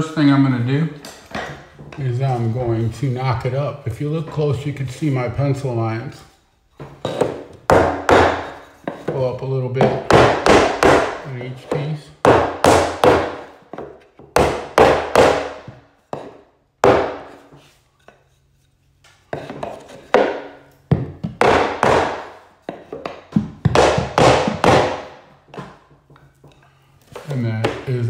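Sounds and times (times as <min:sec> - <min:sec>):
wooden block knocking: 0:06.8 - 0:18.2, 0:19.3 - 0:26.6, 0:27.2 - 0:28.0.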